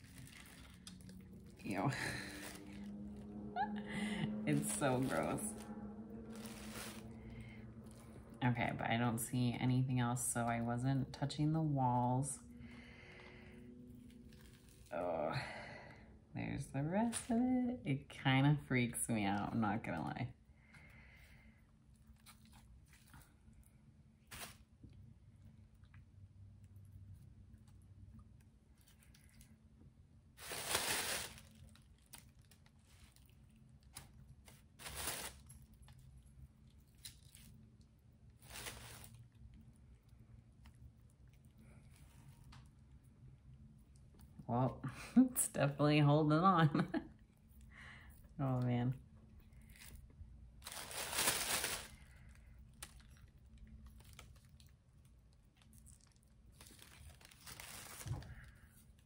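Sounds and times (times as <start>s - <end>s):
rubber mold peeling crackles: 0.0s - 1.8s
loud rustle: 4.5s - 7.4s.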